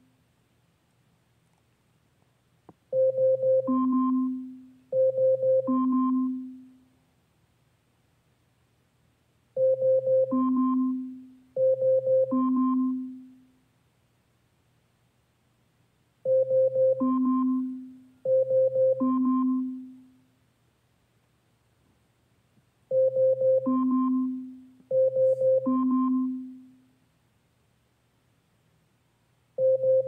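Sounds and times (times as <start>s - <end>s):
smart speaker alarm chime: 2.9s - 6.7s, 9.6s - 13.4s, 16.3s - 20.0s, 22.9s - 26.7s, 29.6s - 30.0s.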